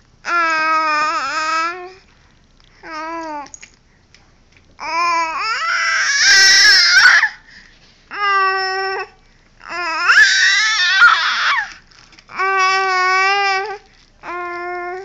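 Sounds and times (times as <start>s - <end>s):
baby high-pitched calls: 4.8s - 7.4s, 9.7s - 15.0s.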